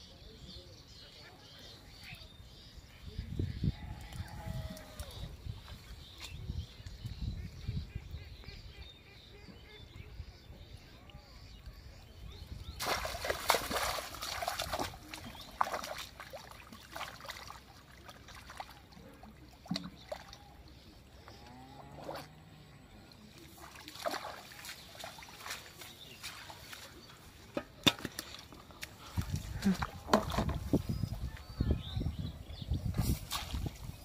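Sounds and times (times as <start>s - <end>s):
muddy water splashing: 11.8s - 34.0s.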